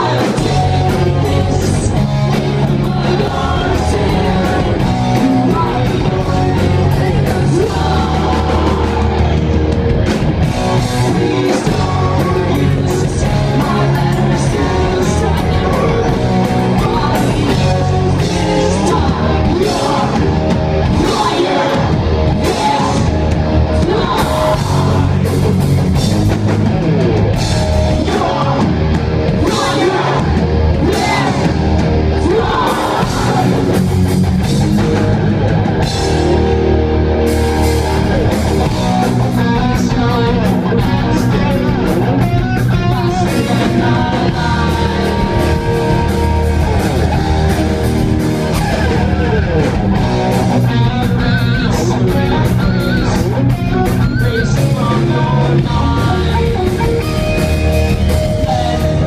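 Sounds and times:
person singing: 0:00.0 - 0:09.5, 0:10.6 - 0:25.6, 0:27.9 - 0:34.0, 0:38.8 - 0:46.4, 0:50.5 - 0:59.0
bass guitar: 0:00.0 - 0:59.0
distorted electric guitars: 0:00.0 - 0:59.0
drum kit: 0:00.0 - 0:59.0.

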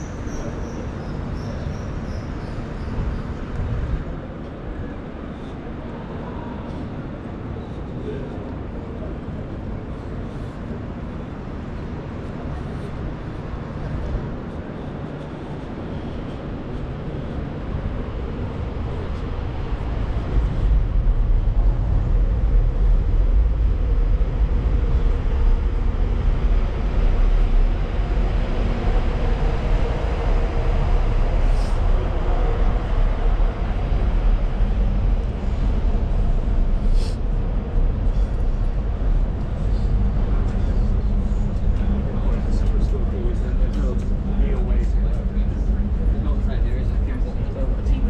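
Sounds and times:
low rumble of traffic: 0:00.0 - 0:48.0.

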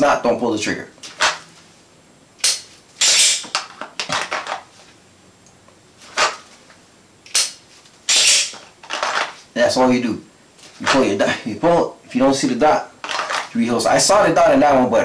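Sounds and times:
pistol drawn from holster: 0:01.0 - 0:01.4, 0:02.4 - 0:04.7, 0:06.1 - 0:06.5, 0:07.3 - 0:09.4, 0:13.0 - 0:13.5
pistol slide racking: 0:02.4 - 0:04.6, 0:06.2 - 0:06.4, 0:07.3 - 0:09.4.

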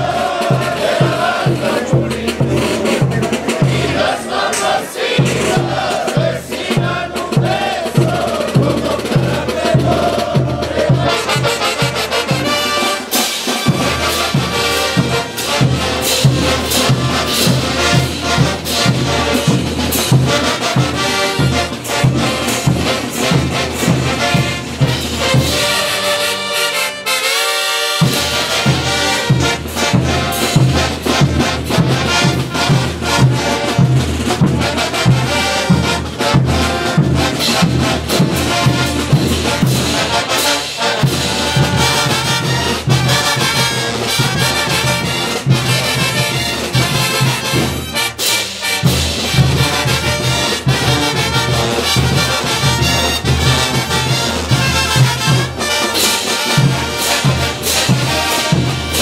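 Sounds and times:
bass drum beat: 0:00.0 - 0:04.5, 0:05.2 - 0:11.6
brass band playing: 0:00.0 - 0:59.0.

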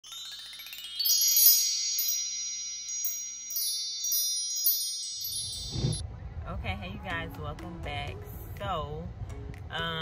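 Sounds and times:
glittering bell-like chimes: 0:00.0 - 0:06.0.

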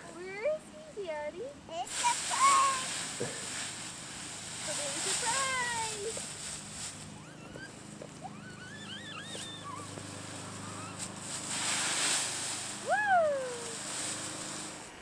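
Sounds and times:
dry leaves rustling and crunching: 0:01.8 - 0:14.8
child crying out: 0:07.2 - 0:09.9, 0:12.8 - 0:13.7
child squealing and babbling: 0:07.2 - 0:10.0.

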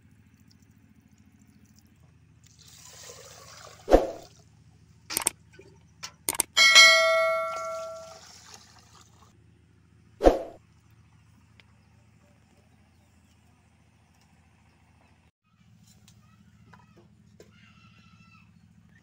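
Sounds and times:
water poured into a pot: 0:02.4 - 0:04.4, 0:07.6 - 0:09.3
metal pot ringing: 0:06.4 - 0:08.3.

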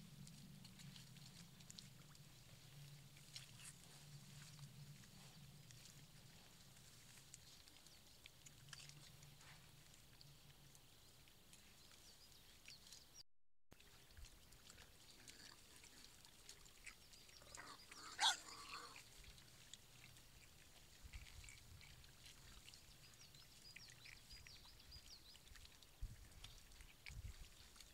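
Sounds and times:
rustling and ticking in wet ground: 0:00.0 - 0:27.9
piglet squealing: 0:17.5 - 0:19.0.

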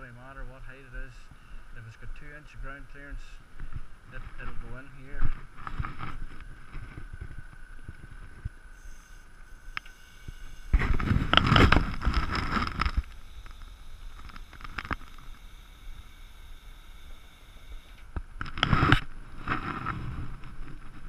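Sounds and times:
hydraulic ramp whine: 0:08.7 - 0:19.0
ramp rumbling and clatter: 0:10.7 - 0:15.4, 0:18.0 - 0:21.0.

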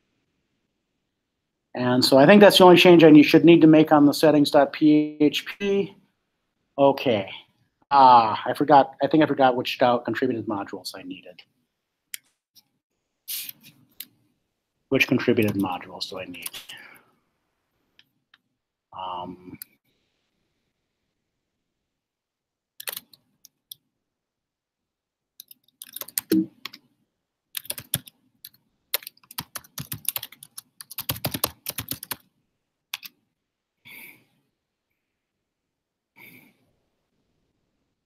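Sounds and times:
typing on computer keyboard: 0:22.8 - 0:23.7, 0:25.4 - 0:26.8, 0:27.6 - 0:32.3, 0:32.9 - 0:33.2.

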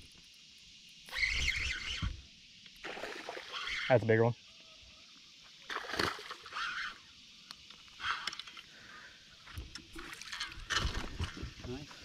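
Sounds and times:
fish splashing at water surface: 0:02.8 - 0:03.9, 0:05.7 - 0:06.9.

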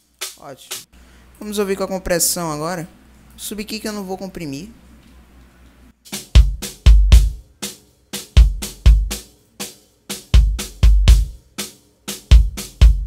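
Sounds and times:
deep punchy kick drum hits: 0:06.3 - 0:07.4, 0:08.4 - 0:09.2, 0:10.4 - 0:11.4, 0:12.3 - 0:13.0.

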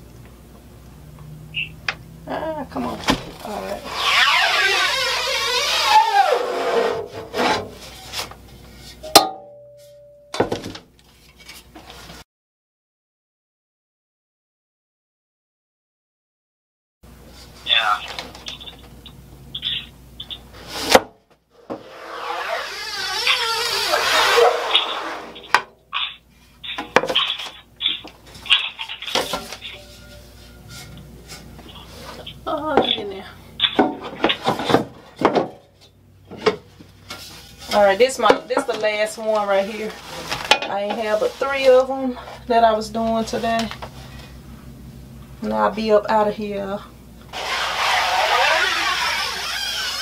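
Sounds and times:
scoop scraping screen mesh: 0:21.8 - 0:32.4.

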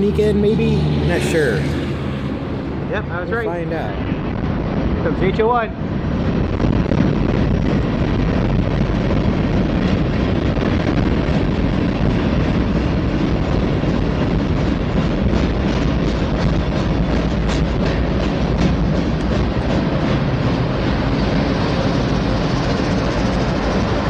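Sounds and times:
train wheels rumbling on rail: 0:00.0 - 0:24.0
wind buffeting microphone: 0:00.0 - 0:24.0
train wheel clacks: 0:11.2 - 0:24.0.

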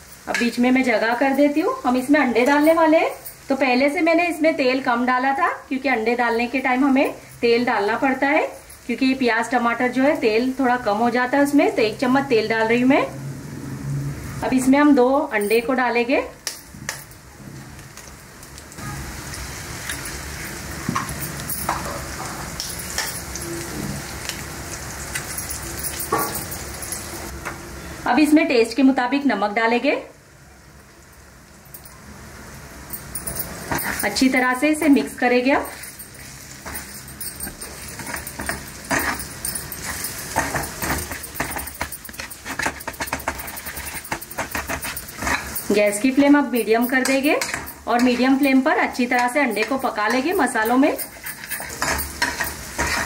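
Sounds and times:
oil sizzling and crackling: 0:00.0 - 0:27.4, 0:30.7 - 0:53.0
metal spatula scraping a griddle: 0:33.6 - 0:34.4, 0:35.6 - 0:45.9, 0:46.5 - 0:53.0.

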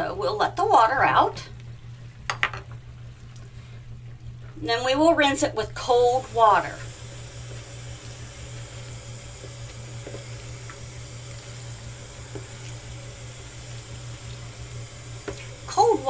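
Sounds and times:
water running from a sink tap: 0:05.2 - 0:16.0.

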